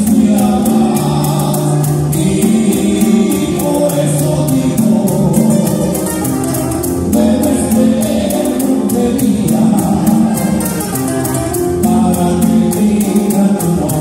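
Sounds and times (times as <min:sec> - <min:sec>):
acoustic guitars strumming: 0:00.0 - 0:14.0
light percussion beat: 0:00.0 - 0:14.0
man singing: 0:00.0 - 0:14.0.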